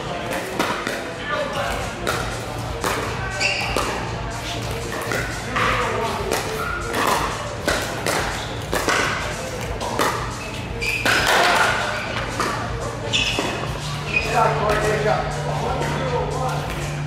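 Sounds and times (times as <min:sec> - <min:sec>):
paddles striking plastic ball: 0:06.3 - 0:10.3.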